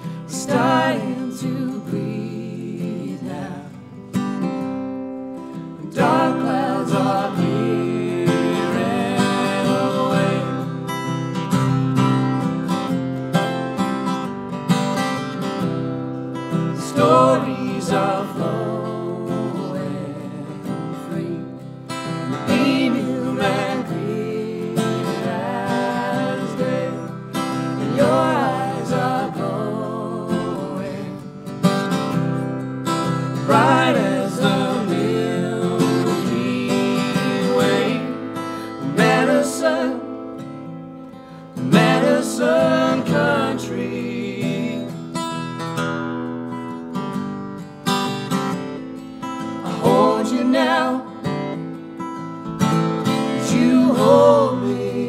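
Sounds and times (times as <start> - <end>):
person singing: 0.0 - 4.0, 5.8 - 10.9, 16.8 - 31.3, 33.4 - 40.3, 41.6 - 45.0, 49.6 - 51.4, 53.1 - 55.0
acoustic guitar strummed: 0.0 - 55.0.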